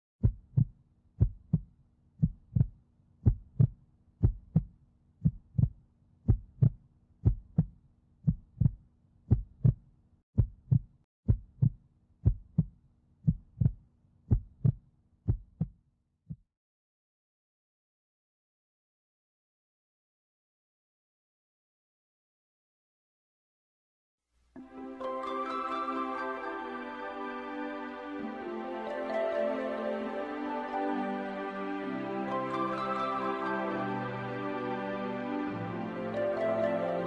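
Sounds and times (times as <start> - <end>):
heartbeat thumps: 0.2 - 16.4.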